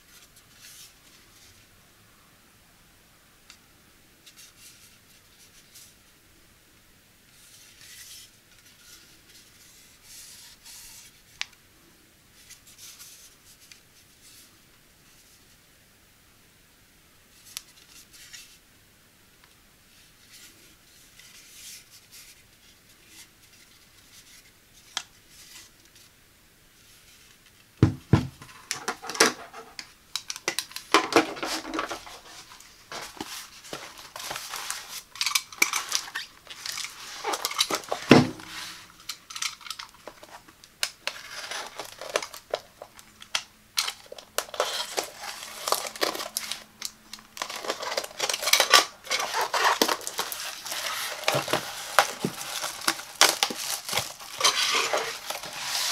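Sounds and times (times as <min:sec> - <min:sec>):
clattering and scraping: 0:28.2 - 0:29.8, 0:30.9 - 0:40.4, 0:47.4 - 0:55.9
packing tape crinkling and tearing: 0:28.4 - 0:55.9.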